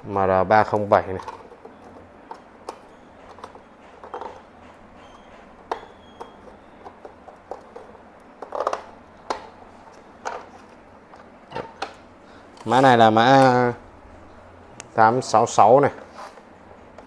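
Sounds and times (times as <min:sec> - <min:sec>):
plastic clicks and knocks: 0:05.7 - 0:09.5.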